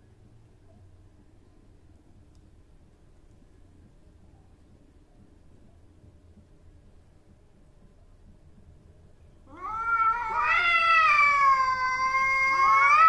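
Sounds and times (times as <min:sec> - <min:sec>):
cat threat yowl: 0:09.5 - 0:13.0.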